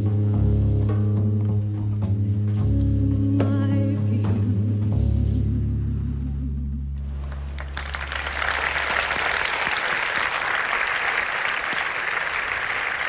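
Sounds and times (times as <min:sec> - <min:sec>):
audience applauding: 0:07.1 - 0:13.0.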